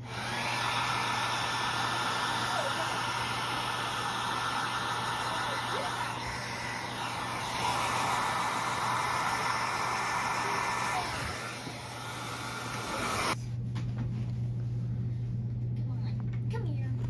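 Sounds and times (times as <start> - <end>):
small motorised tool running: 0.0 - 13.4.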